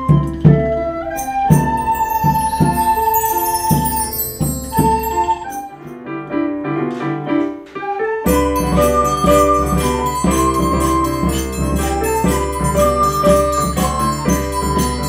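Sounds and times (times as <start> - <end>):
keyboard notes: 0.0 - 15.0
recorders playing: 1.1 - 5.9, 8.3 - 15.0
bar chimes shimmering: 1.1 - 6.0, 8.3 - 15.0.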